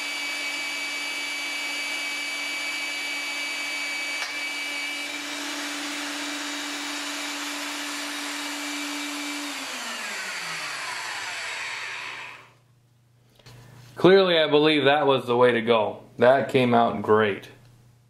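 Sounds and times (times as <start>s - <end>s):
magnetic drill motor whine: 0.0s - 12.6s.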